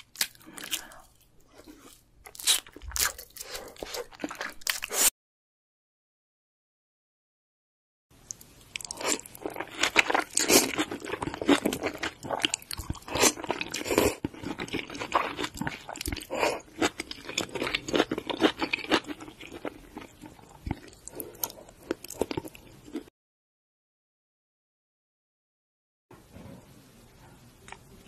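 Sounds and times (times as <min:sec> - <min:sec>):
noodles slurped and chewed: 0:08.8 - 0:23.1.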